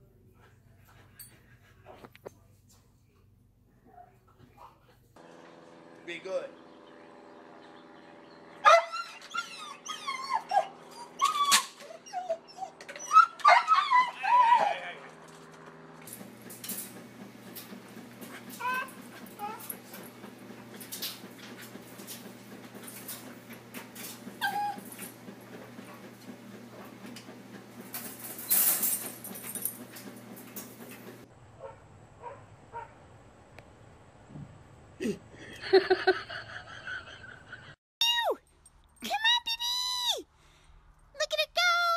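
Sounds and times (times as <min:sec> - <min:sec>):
puppy whimpering: 0:08.6 - 0:14.9, 0:24.4 - 0:25.1
dog whining and yowling: 0:08.6 - 0:15.0, 0:18.6 - 0:19.8, 0:24.4 - 0:25.2.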